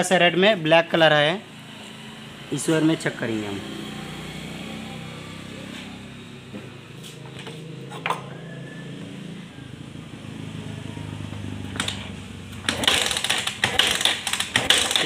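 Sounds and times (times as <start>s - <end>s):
low engine-like hum: 1.9s - 12.7s.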